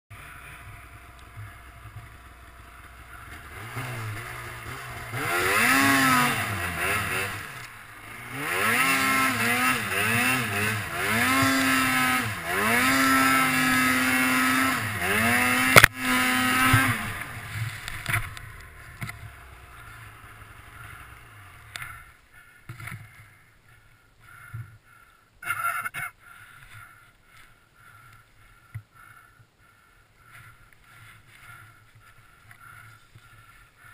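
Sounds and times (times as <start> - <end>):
snowmobile engine revving: 0.1 - 24.6
snowmobile engine idling: 0.1 - 33.9.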